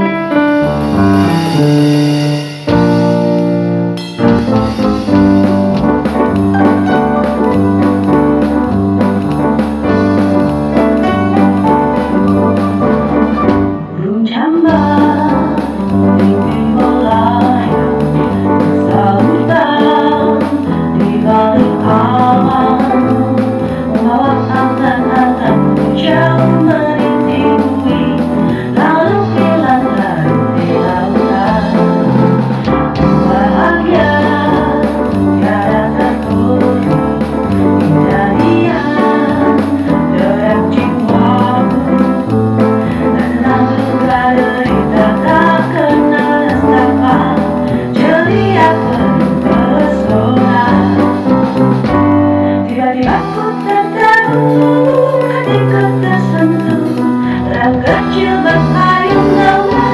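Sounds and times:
electronic drum beat: 0:00.6 - 0:13.7
woman singing a pop ballad: 0:13.9 - 0:59.9.

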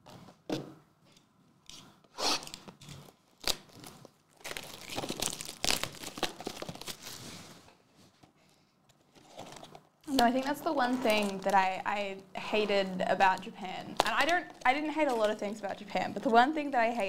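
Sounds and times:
plastic wrap ripping: 0:02.2 - 0:07.4, 0:09.1 - 0:11.8, 0:12.6 - 0:15.5
plastic wrap snapping: 0:02.4 - 0:07.2, 0:13.3 - 0:15.4
plastic wrap crinkling: 0:02.4 - 0:17.0.

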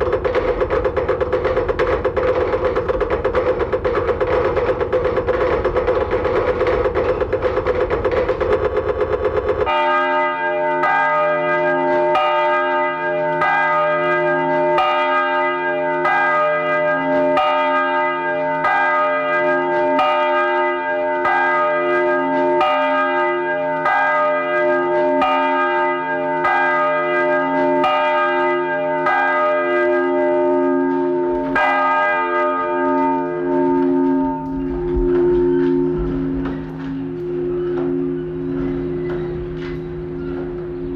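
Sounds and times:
rapid clattering: 0:00.0 - 0:09.8
church bells ringing: 0:00.0 - 0:40.9.

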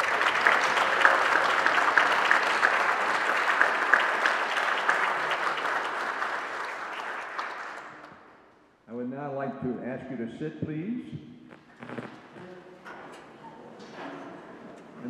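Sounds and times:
audience applauding: 0:00.0 - 0:08.3, 0:11.7 - 0:12.4.

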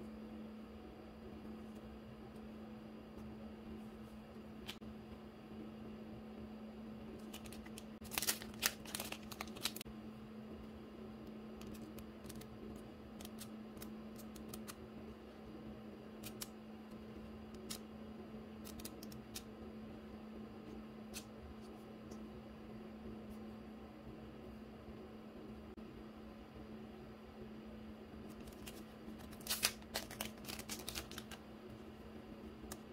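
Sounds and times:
steady low hum: 0:00.0 - 0:32.9
paper pages flipping: 0:07.2 - 0:09.8, 0:11.6 - 0:12.5, 0:28.3 - 0:31.4
plastic wrapping crinkling: 0:07.2 - 0:09.8, 0:28.4 - 0:31.4.

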